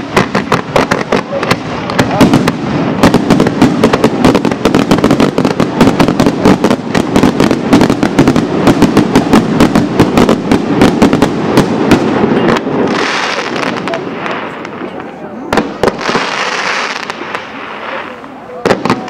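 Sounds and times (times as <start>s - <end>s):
fireworks bangs: 0.0s - 19.0s
hissing crackle of fireworks: 0.0s - 19.0s.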